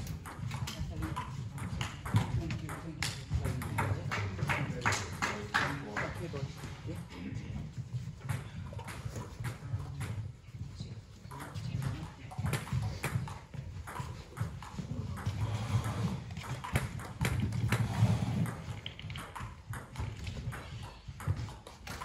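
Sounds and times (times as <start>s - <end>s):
table tennis ball ticking: 0.0s - 4.8s, 11.2s - 22.0s.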